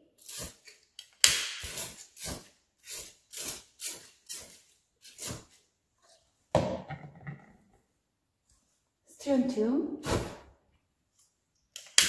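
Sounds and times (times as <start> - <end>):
spray bottle squirting: 0.2 - 5.5
whooshing hiss of igniting mist: 1.3 - 5.4.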